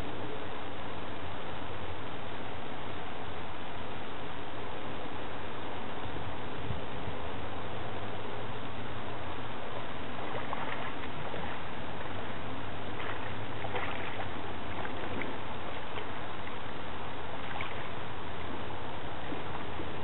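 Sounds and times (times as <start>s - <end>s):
steady background hiss: 0.0s - 20.0s
fish splashing in water: 10.1s - 12.2s, 12.8s - 18.4s.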